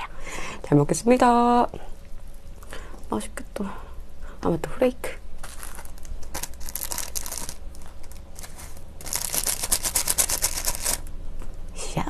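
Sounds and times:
plastic sachet tearing: 0:05.4 - 0:11.1
sachet crinkling as shaken: 0:05.4 - 0:11.1.

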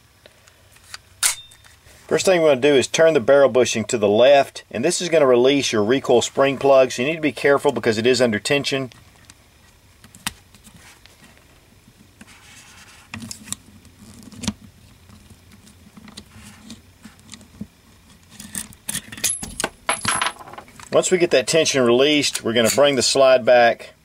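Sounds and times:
small metal clicks and scrapes: 0:13.1 - 0:19.4.

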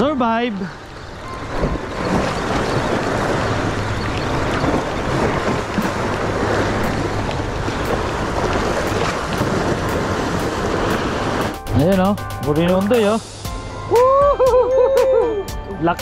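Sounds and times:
wind buffeting microphone: 0:00.0 - 0:11.6
sea waves washing on rocks: 0:00.0 - 0:13.2.

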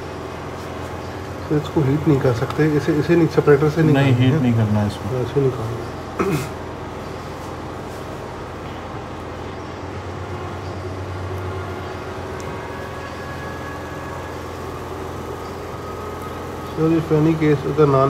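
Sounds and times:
low room noise hum: 0:00.0 - 0:18.0.

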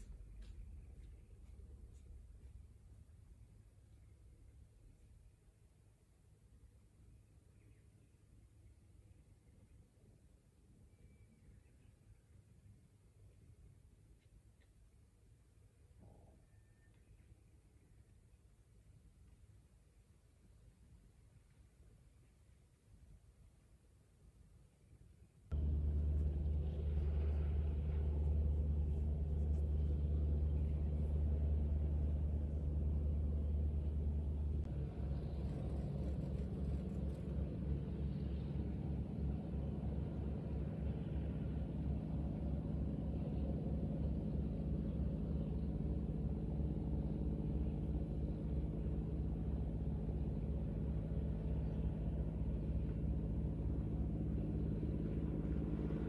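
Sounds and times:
boat diesel engine drone: 0:25.5 - 0:56.0.

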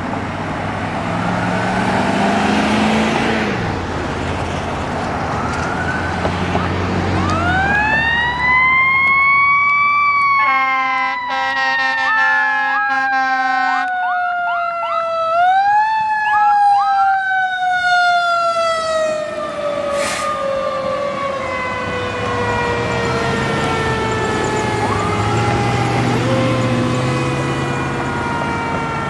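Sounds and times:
truck engine driving off: 0:00.0 - 0:09.9, 0:18.0 - 0:29.0
siren falling wail: 0:05.1 - 0:29.0
siren rising whoops: 0:05.2 - 0:29.0
air horn blast: 0:10.4 - 0:13.9.

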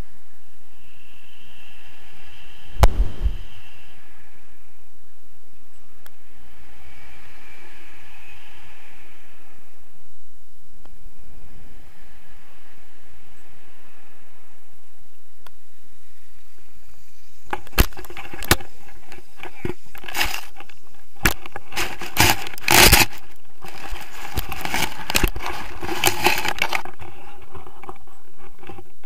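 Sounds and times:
camera rubbing through grass: 0:02.8 - 0:03.8, 0:21.5 - 0:28.5.

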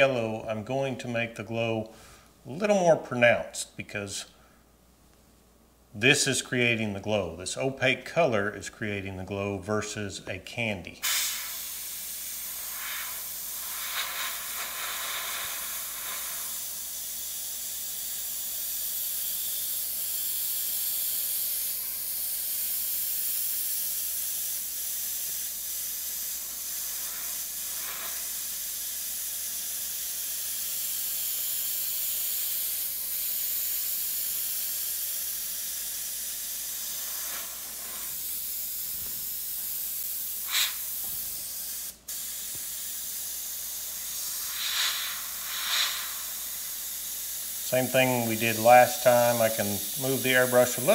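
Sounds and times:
airbrush hissing air: 0:11.0 - 0:50.9.

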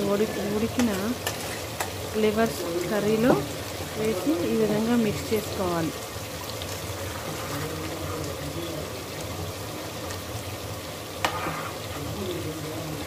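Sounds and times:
curry simmering and bubbling: 0:00.0 - 0:13.0
metal spoon stirring: 0:00.3 - 0:02.0, 0:11.2 - 0:12.0.

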